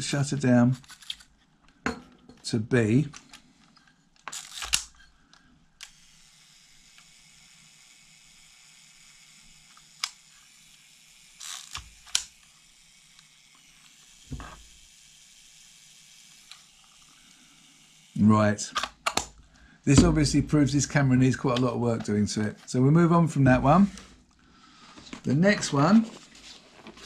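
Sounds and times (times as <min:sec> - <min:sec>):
camera mechanism clicking: 0:00.8 - 0:01.3, 0:04.2 - 0:05.0, 0:05.8 - 0:06.2.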